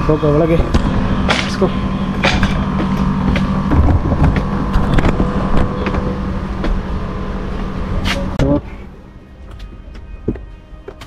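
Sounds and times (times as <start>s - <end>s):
air conditioner units humming: 0.0s - 11.0s
footsteps on metal stairs: 0.6s - 6.9s, 9.2s - 11.0s
wind rumbling on microphone: 3.6s - 6.0s.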